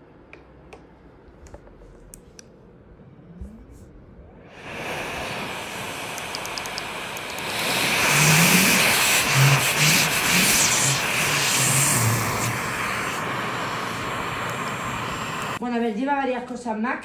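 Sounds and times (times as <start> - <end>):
short low suction pulses: 4.4 - 15.6
vacuum cleaner running: 4.4 - 15.6.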